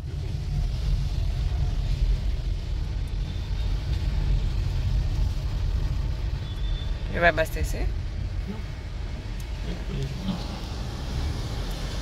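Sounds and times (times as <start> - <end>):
car engine and tyres rumbling: 0.0 - 12.0
water hissing over windscreen: 9.5 - 12.0.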